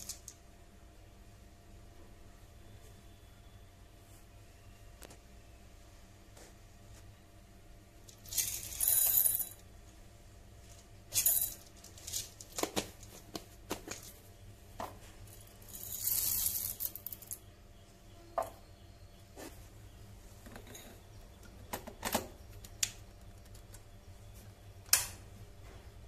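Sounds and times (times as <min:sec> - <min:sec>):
single beans clicking: 0:00.0 - 0:00.4, 0:08.1 - 0:09.6, 0:15.4 - 0:17.5
coffee beans poured into bowl: 0:15.7 - 0:17.4.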